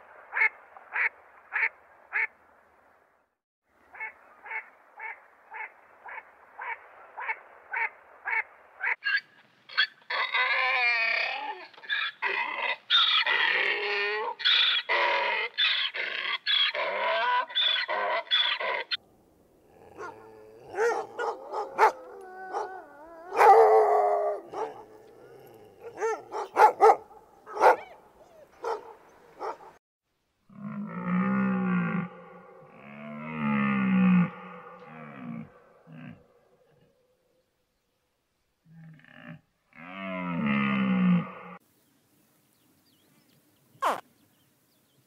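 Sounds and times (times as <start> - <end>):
donkey braying: 9.0 - 19.0, 19.7 - 29.8, 43.8 - 44.0
dog whining and yelping: 20.7 - 23.9, 25.8 - 28.8.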